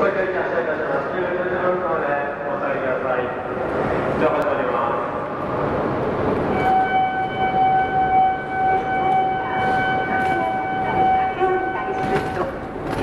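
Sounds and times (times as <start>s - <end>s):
station platform noise: 0.0s - 13.0s
electronic departure signal tone: 6.5s - 12.4s.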